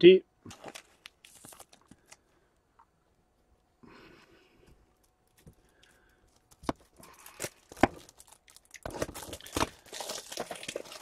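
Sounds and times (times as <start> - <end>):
packaging crinkling and tearing: 0.5 - 2.2, 5.2 - 11.0.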